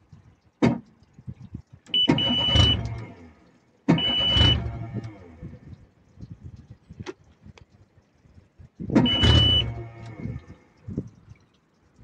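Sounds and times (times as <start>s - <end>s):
high warning beep: 2.0s - 2.8s, 4.0s - 4.6s, 9.0s - 9.7s
electric starter cranking engine: 3.9s - 5.2s.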